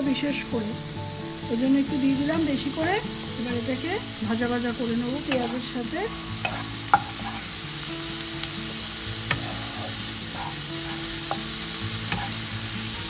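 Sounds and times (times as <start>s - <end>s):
onions sizzling in hot oil: 0.0s - 13.0s
spatula stirring in pan: 5.2s - 7.8s, 8.4s - 13.0s
spatula knocking against pan: 6.4s - 7.4s, 12.1s - 12.4s.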